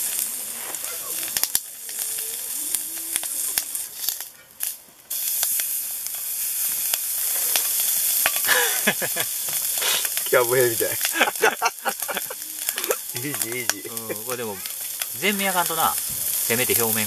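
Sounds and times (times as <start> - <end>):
meat sizzling on a griddle: 0.0 - 17.0
fat popping: 11.0 - 16.5.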